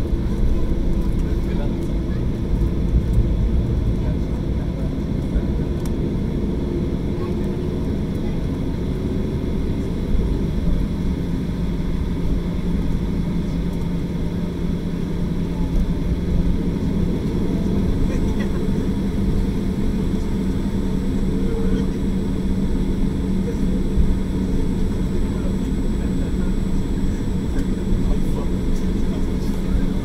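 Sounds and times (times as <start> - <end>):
low rumble: 0.0 - 9.6
jet engine hum: 0.0 - 30.0.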